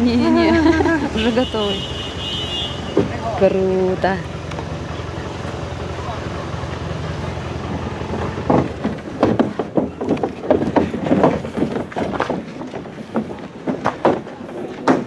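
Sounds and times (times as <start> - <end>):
vehicle engine idling: 0.0 - 14.8
irregular loud bumps: 0.0 - 15.0.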